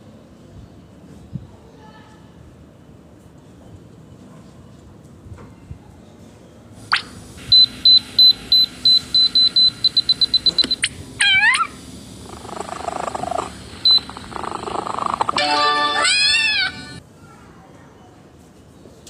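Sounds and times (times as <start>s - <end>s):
high electronic beeps: 13.8s - 17.0s
swooping electronic sound: 15.2s - 17.0s.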